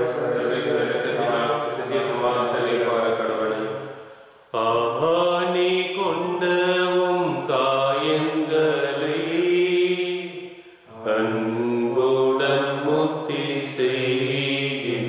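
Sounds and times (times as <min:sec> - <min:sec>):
solo voice singing a hymn: 0:04.5 - 0:15.0.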